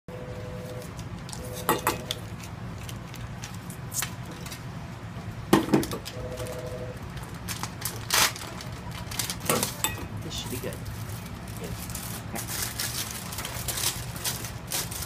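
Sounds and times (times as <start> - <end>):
low hum: 4.2 - 7.6.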